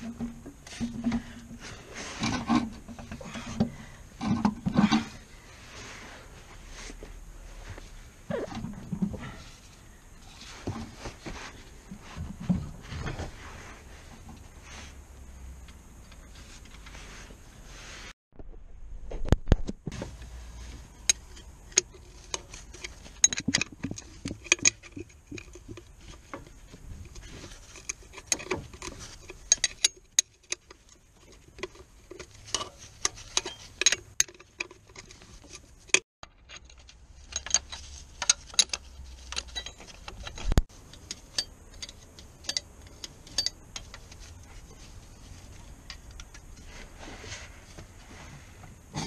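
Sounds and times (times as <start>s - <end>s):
spanner clicking on metal bolt: 37.3s - 43.9s.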